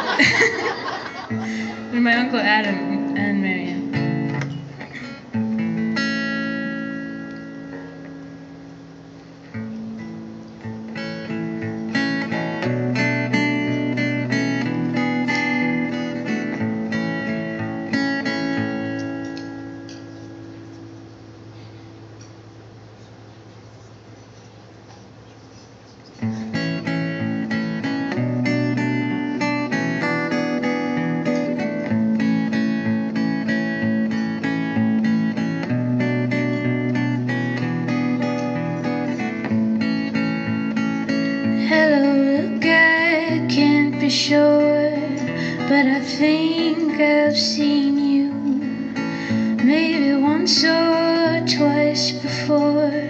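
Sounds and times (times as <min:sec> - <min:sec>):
acoustic guitar chords: 0:00.0 - 0:22.9, 0:26.2 - 0:53.0
woman singing: 0:01.8 - 0:04.1, 0:41.4 - 0:53.0.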